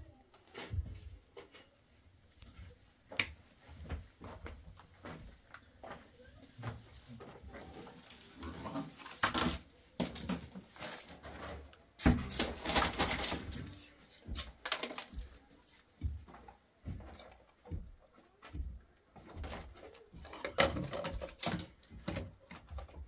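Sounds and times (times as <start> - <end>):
plastic pipes knocking and scraping: 6.6 - 15.4, 16.0 - 23.0.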